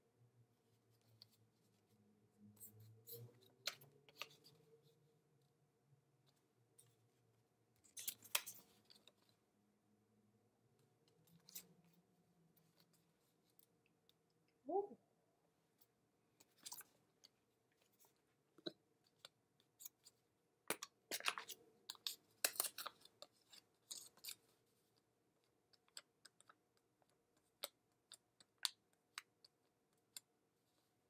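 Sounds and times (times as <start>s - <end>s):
clicks and rustles of handling: 7.8s - 9.4s, 15.7s - 31.0s.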